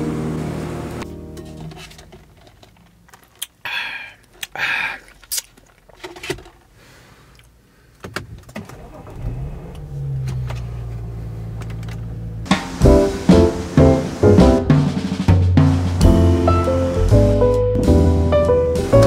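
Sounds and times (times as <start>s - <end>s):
car engine starting and idling: 8.2s - 16.8s.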